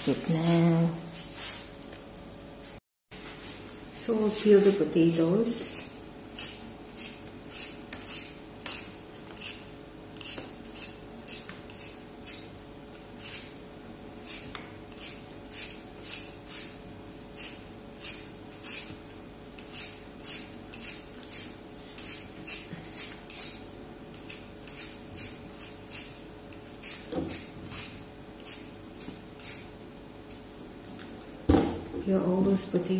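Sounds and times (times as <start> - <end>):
vegetable peeler scraping potato: 4.2 - 13.6, 14.2 - 29.8.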